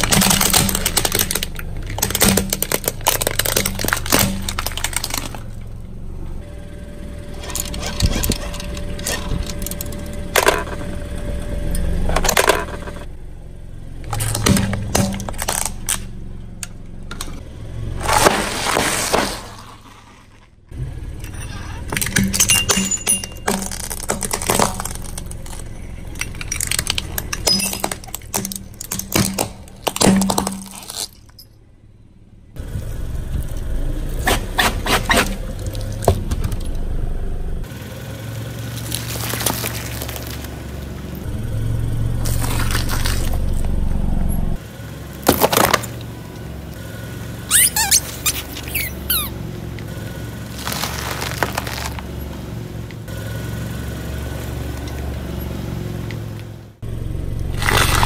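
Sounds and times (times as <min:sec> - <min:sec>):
objects cracking under car tyre: 0:00.0 - 0:06.1, 0:07.3 - 0:10.9, 0:14.0 - 0:31.5, 0:33.3 - 0:36.8, 0:38.5 - 0:41.3, 0:42.1 - 0:44.6, 0:45.2 - 0:46.8, 0:47.5 - 0:53.1, 0:57.5 - 0:58.0
clinking: 0:21.2 - 0:31.6.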